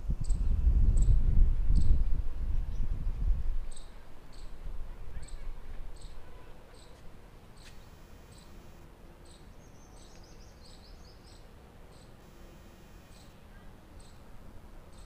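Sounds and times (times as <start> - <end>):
low rumble on microphone: 0.0 - 3.8
bird twitter: 9.2 - 12.2.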